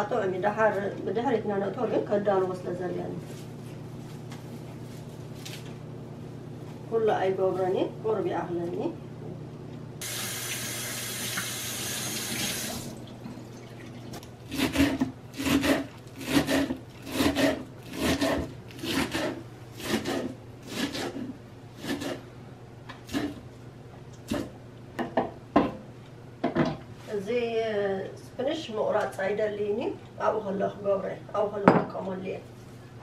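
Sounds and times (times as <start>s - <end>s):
tap water running: 10.0s - 14.3s
knife chopping on wooden board: 14.5s - 22.2s.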